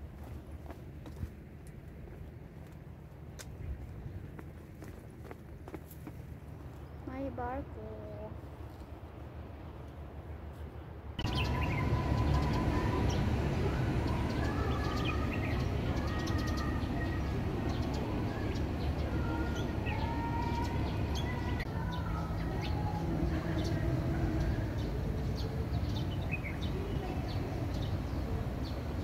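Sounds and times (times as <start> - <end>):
steady low rumble: 0.0 - 29.0
small birds chirping: 11.2 - 29.0.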